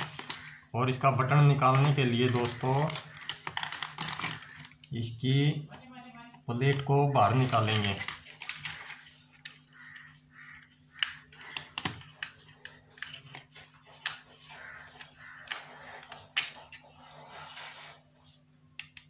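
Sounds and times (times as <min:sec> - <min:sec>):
plastic clicks and knocks: 0:11.0 - 0:14.2.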